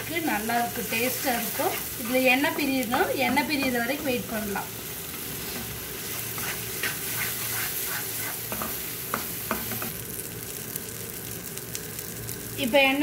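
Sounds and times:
masala sizzling in oil: 0.0s - 13.0s
wooden spatula scraping pan: 5.4s - 9.3s
small pops of frying oil: 8.5s - 12.0s.

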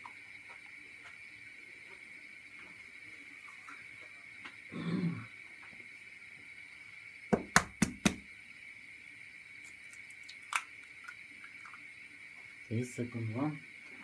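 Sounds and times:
egg knocking against hard edge: 7.3s - 8.2s.

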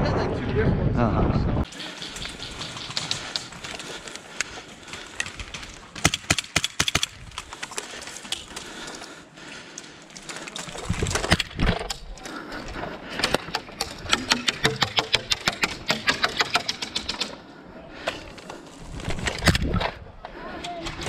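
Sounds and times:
sharp clicks and knocks: 13.2s - 17.4s.

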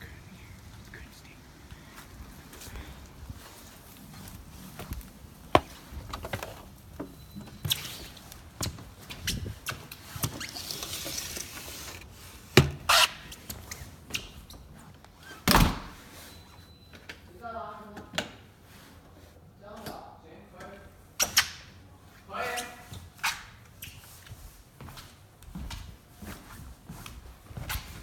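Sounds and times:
footsteps: 1.0s - 9.9s
door opening and shutting: 15.2s - 16.0s.

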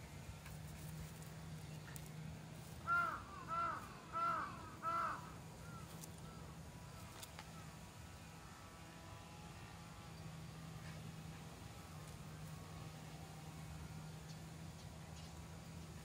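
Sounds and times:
crow cawing: 2.8s - 6.4s.

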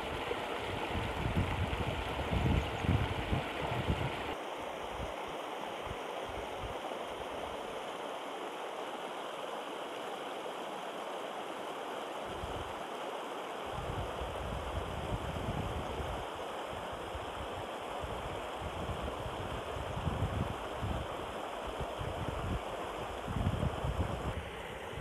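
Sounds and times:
river rushing over rocks: 0.0s - 14.4s.

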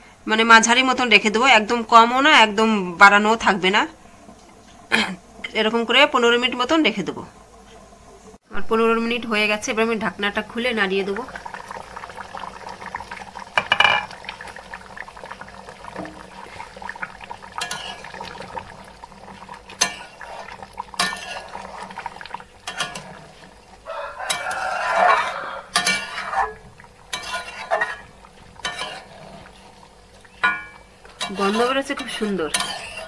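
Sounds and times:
metal spatula scraping pan: 17.6s - 18.1s, 21.0s - 21.7s, 22.6s - 23.5s, 24.2s - 29.6s, 30.4s - 33.0s.

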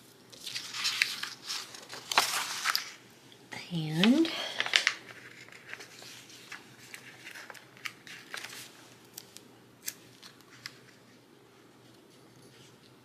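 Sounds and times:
paper pages rustling: 0.0s - 3.0s, 4.0s - 11.2s.

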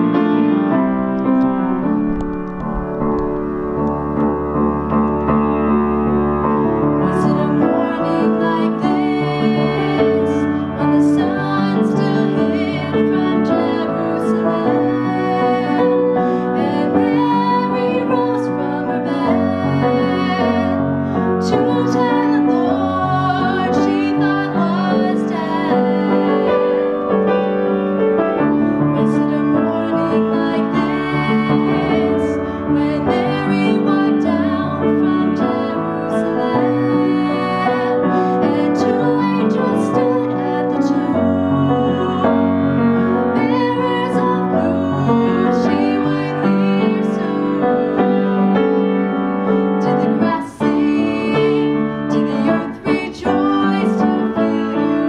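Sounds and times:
upright piano accompaniment: 0.0s - 55.0s
woman singing: 7.0s - 26.9s, 28.8s - 48.6s, 49.8s - 55.0s.

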